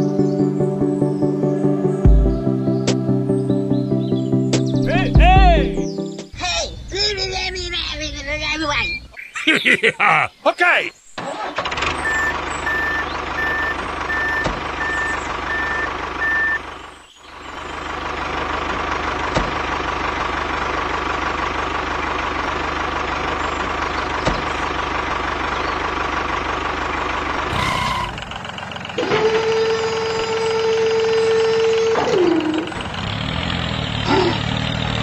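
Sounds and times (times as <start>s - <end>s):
small motor and gearbox whine: 11.7s - 16.8s, 29.0s - 32.7s
high beeps: 12.0s - 16.6s.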